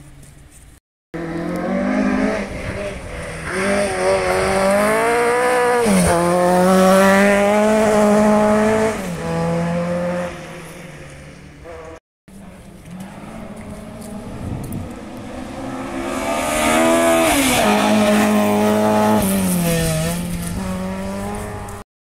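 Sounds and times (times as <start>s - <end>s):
rally car engine revving past: 1.2s - 10.9s, 12.6s - 21.8s.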